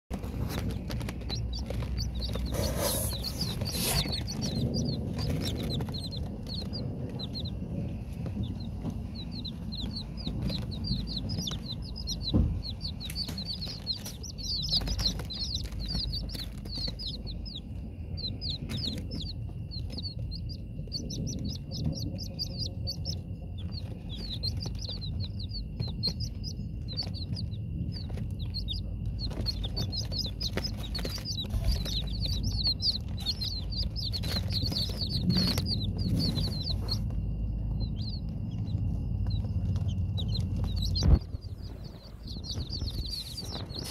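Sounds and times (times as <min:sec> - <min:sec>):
chicks peeping: 0:00.1 - 0:43.9
low rumble: 0:00.1 - 0:43.9
sharp thump: 0:12.2 - 0:13.6.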